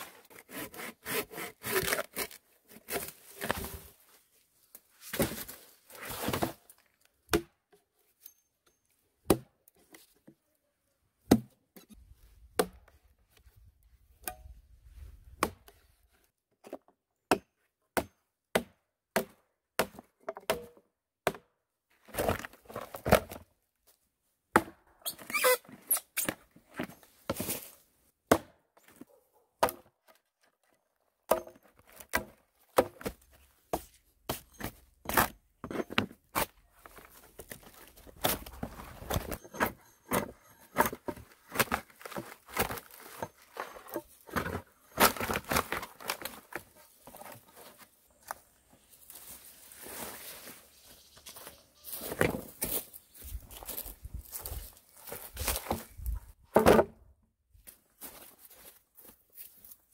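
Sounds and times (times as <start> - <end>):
hatchet striking a log: 17.3 - 21.4.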